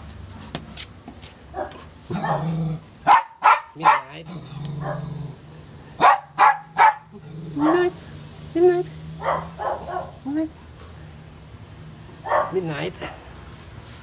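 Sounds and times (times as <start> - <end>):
puppies barking: 1.5 - 4.2, 5.9 - 8.0, 9.1 - 10.2, 12.2 - 13.3.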